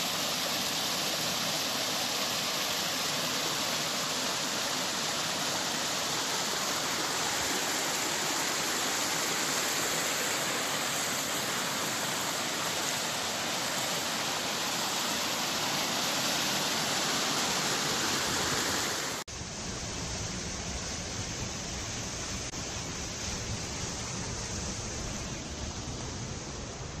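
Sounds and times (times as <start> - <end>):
stream rushing over boulders: 0.0 - 19.2.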